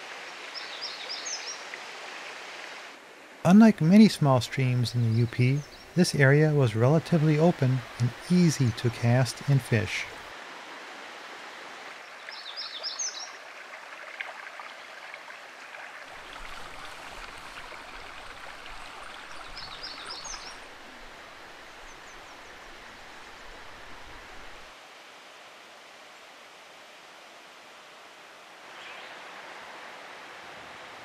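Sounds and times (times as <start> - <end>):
stream water flowing: 0.0 - 31.0
songbird singing: 0.6 - 1.6, 3.5 - 10.3, 12.2 - 13.4, 16.2 - 24.7.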